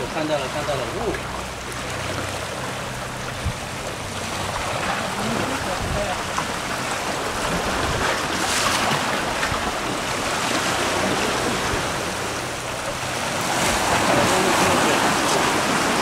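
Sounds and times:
surf splashing over rocks: 0:00.0 - 0:16.0.

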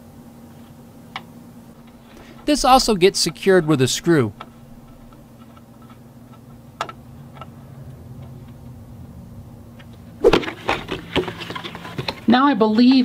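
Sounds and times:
low steady hum: 0:00.0 - 0:13.0
cardboard box rustling and clatter: 0:10.3 - 0:12.3.

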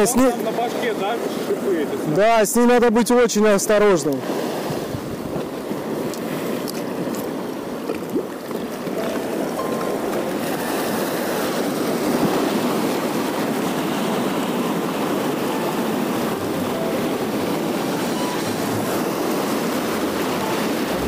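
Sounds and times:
surf breaking over rocks: 0:04.6 - 0:21.0.

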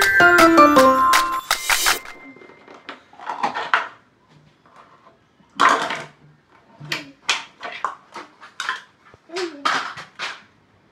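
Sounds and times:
plastic tubs clattering on wood: 0:05.6 - 0:06.2.

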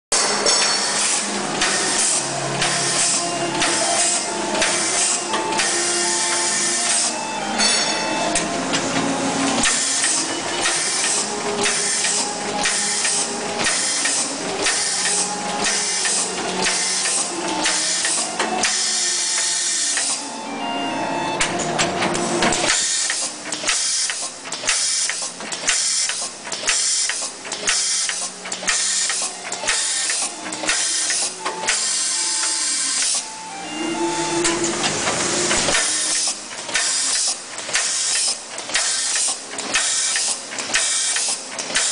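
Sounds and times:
steady machine hum: 0:00.1 - 0:41.9
mechanical strokes with hissing: 0:09.6 - 0:20.2, 0:22.7 - 0:33.3, 0:34.4 - 0:41.9.

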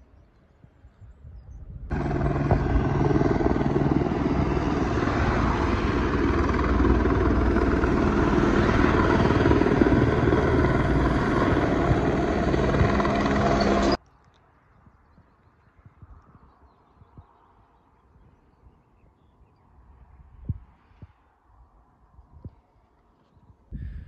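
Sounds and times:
helicopter rotor and engine: 0:01.9 - 0:14.0.

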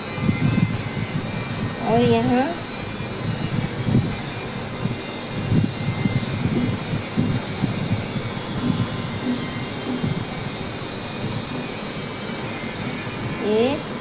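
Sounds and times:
machine background noise: 0:00.0 - 0:14.0
thin high whining tones: 0:00.0 - 0:14.0.

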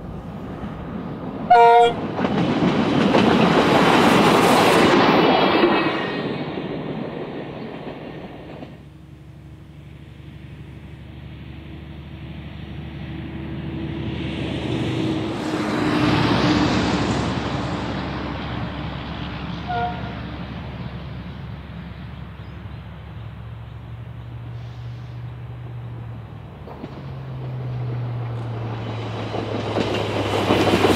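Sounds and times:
distant diesel engine drone: 0:08.4 - 0:30.9.

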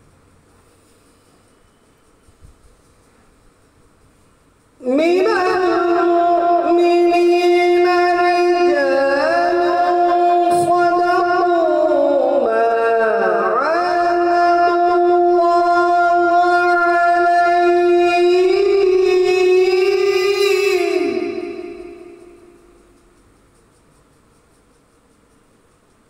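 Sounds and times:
man chanting recitation: 0:04.8 - 0:23.0.

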